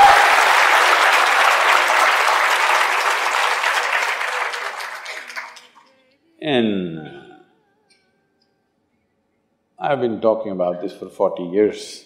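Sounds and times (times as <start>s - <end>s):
audience applause: 0.0s - 5.9s.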